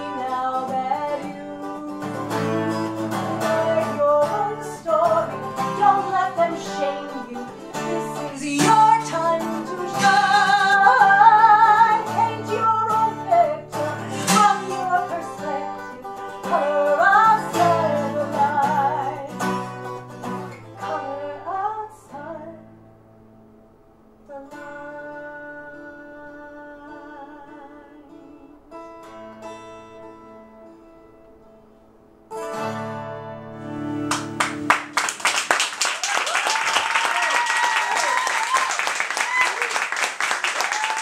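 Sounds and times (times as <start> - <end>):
woman singing with vibrato: 0.0 - 19.5, 20.8 - 22.8, 24.2 - 29.1
strummed acoustic guitar: 0.0 - 34.9.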